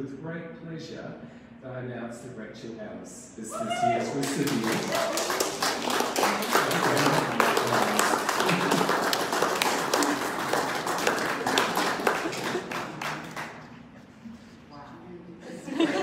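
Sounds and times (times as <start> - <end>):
audience applauding: 4.0 - 13.8.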